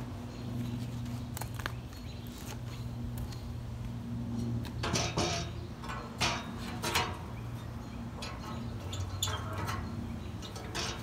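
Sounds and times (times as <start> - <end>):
steel rods knocking and scraping: 4.5 - 11.0.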